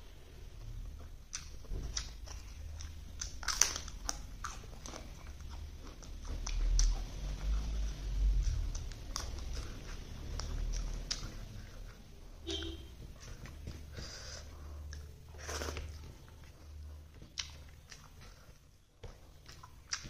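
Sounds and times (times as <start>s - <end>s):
chewing crunch: 0.6s - 12.1s, 13.1s - 20.0s
potato chips cracking: 1.4s - 5.4s.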